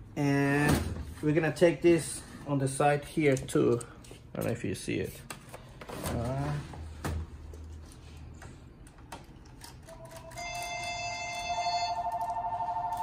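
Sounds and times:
electronic alert beeping: 10.2s - 13.0s.

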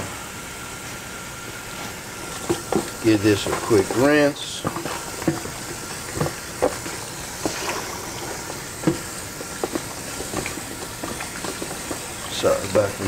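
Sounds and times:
kitchen tap running water: 2.0s - 13.0s.

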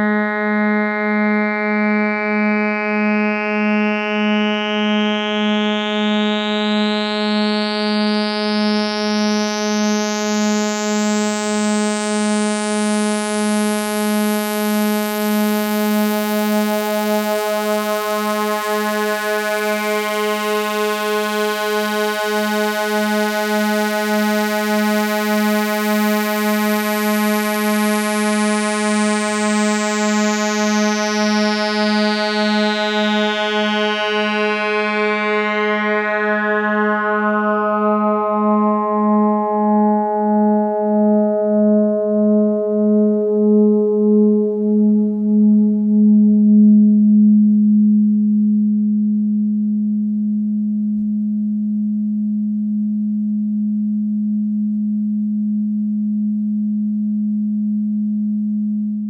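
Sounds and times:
wobbly synthesizer drone: 32.2s - 49.0s.

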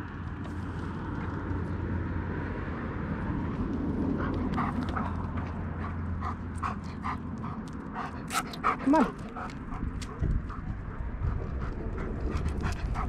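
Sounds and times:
steady low rumble: 0.0s - 13.0s
dog panting: 4.0s - 13.0s.

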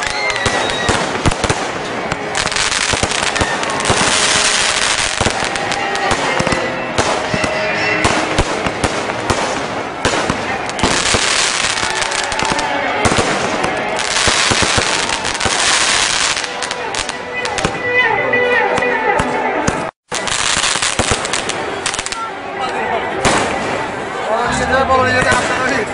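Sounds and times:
fireworks hissing: 0.0s - 7.5s
firecrackers cracking: 0.0s - 17.9s, 18.7s - 25.9s
music: 2.1s - 9.0s, 10.8s - 25.9s
voices: 21.2s - 25.9s.

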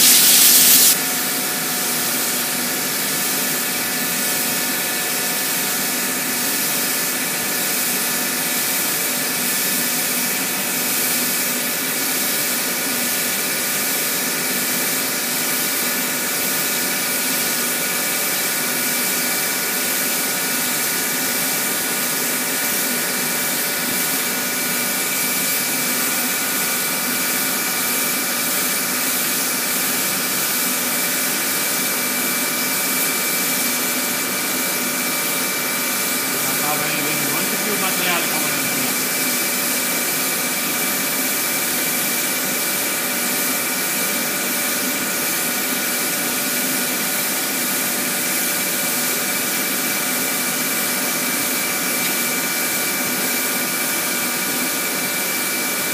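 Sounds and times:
spray gun hissing: 0.0s - 1.0s
mechanical hum: 0.0s - 12.6s.

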